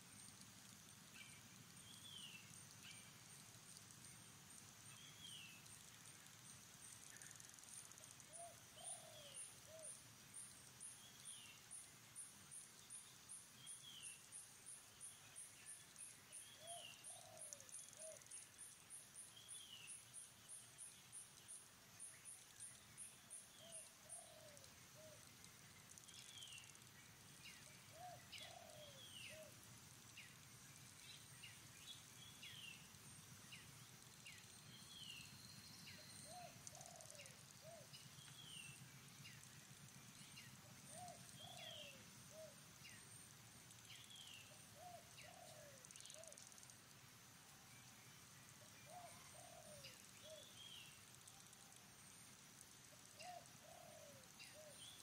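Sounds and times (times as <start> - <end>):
low cooing bird: 8.3 - 10.0, 16.6 - 18.2, 23.6 - 25.2, 27.9 - 29.6, 36.2 - 37.9, 40.7 - 42.6, 44.8 - 46.4, 48.9 - 50.5, 53.2 - 55.0.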